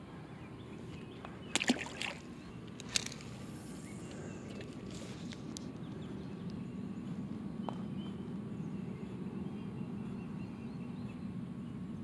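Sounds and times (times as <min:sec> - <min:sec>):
low outdoor background: 0:00.0 - 0:12.0
fish splashing into water: 0:01.5 - 0:02.2.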